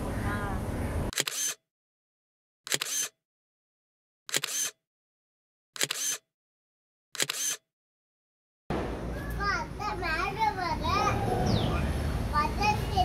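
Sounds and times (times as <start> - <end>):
camera shutter click: 1.1 - 1.6, 2.7 - 3.2, 4.3 - 4.8, 5.8 - 6.2, 7.2 - 7.6.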